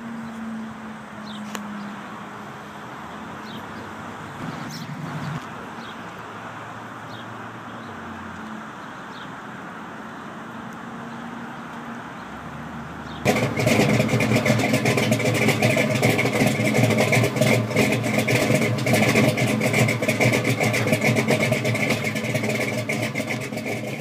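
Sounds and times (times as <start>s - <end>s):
car engine idling: 13.0s - 24.0s.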